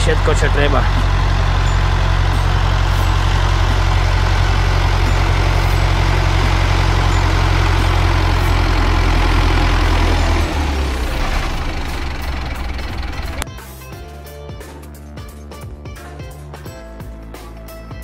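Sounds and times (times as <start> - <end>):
tractor diesel engine running: 0.0 - 13.5.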